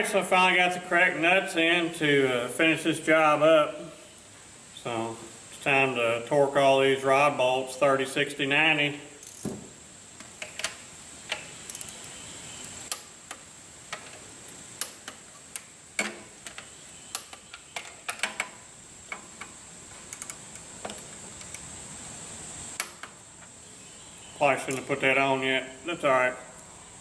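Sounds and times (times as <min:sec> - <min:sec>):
ratchet clicking: 0:09.2 - 0:09.5.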